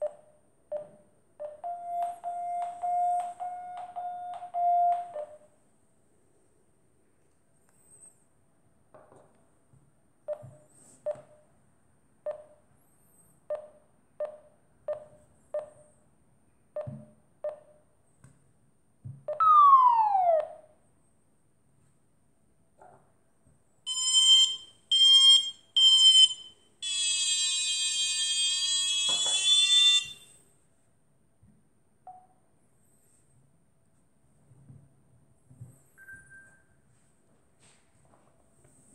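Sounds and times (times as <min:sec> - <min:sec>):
variometer beeps: 0:00.0 - 0:05.5, 0:12.3 - 0:12.6, 0:13.5 - 0:16.0.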